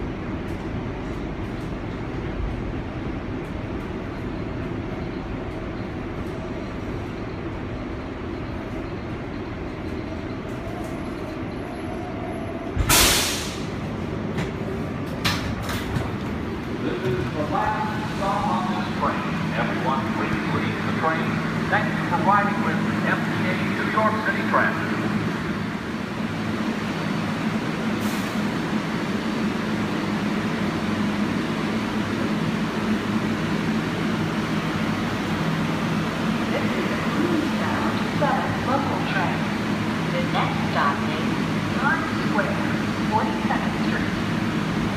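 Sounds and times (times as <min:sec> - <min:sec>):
subway train rumbling: 0:00.0 - 0:44.9
air brakes hissing: 0:12.8 - 0:13.8, 0:28.0 - 0:28.4.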